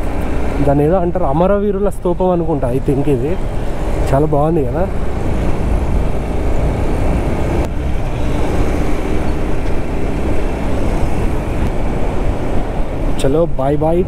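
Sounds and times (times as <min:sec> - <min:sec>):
wind rumbling on microphone: 0:00.0 - 0:14.0
motorcycle engine: 0:03.4 - 0:13.2.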